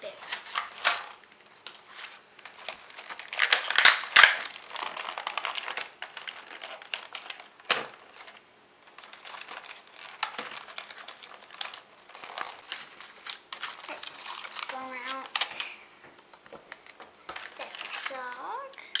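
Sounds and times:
packaging crinkling and rustling: 0:00.1 - 0:19.0.

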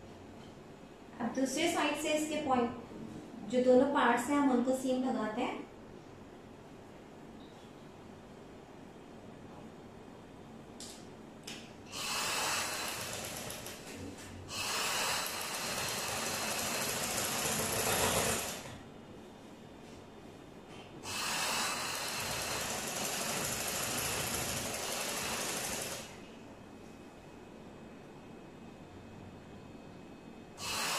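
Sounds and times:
sewing machine stitching: 0:12.0 - 0:13.9, 0:14.6 - 0:18.8, 0:21.8 - 0:26.2.

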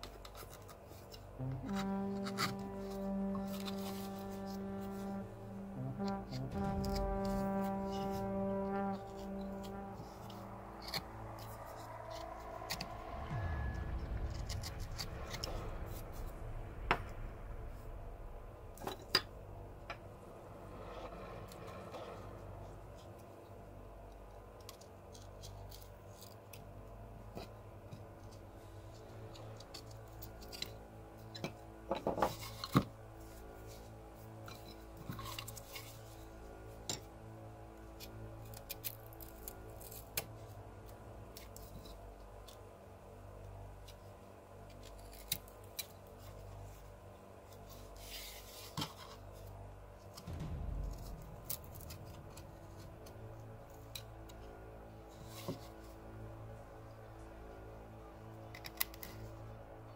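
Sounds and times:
steady low drone: 0:00.0 - 0:59.9
low handling rumble: 0:01.2 - 0:24.6, 0:49.3 - 0:57.5.

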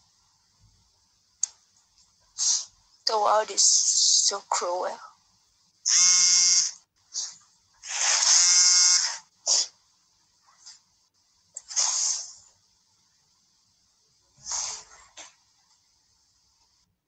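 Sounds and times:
sniffing: 0:02.4 - 0:02.8, 0:09.4 - 0:09.8, 0:11.6 - 0:12.4, 0:14.4 - 0:15.2.

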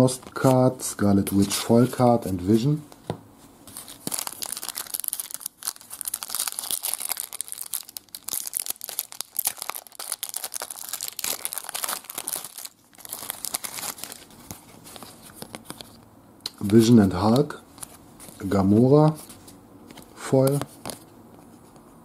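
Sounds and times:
foil wrapper crinkling and tearing: 0:03.7 - 0:16.0.

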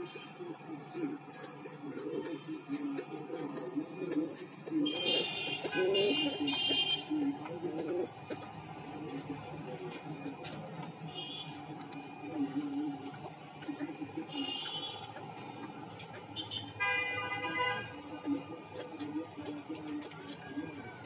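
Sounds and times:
pigeons cooing: 0:00.0 - 0:21.0.

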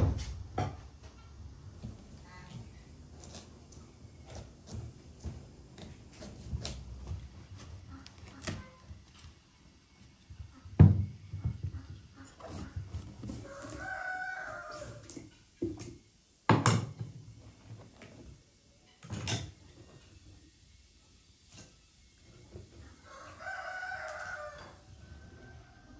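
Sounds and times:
knife cutting pumpkin: 0:12.2 - 0:13.8
rooster crowing: 0:12.2 - 0:15.2, 0:23.0 - 0:25.9.

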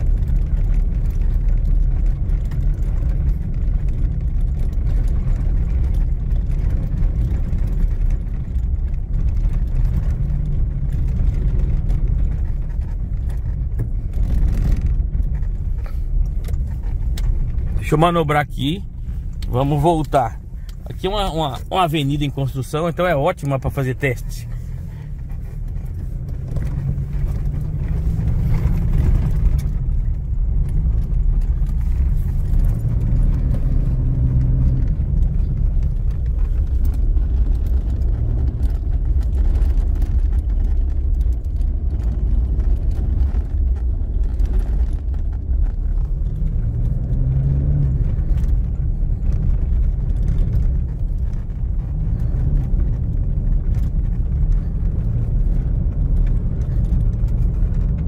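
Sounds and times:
road rumble inside vehicle: 0:00.0 - 0:58.0.

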